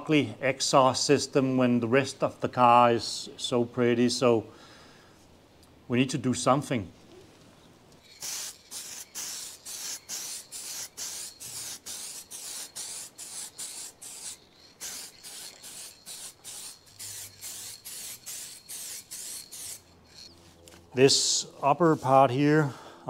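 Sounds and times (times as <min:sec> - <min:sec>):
aerosol spray bursts: 0:08.0 - 0:19.9.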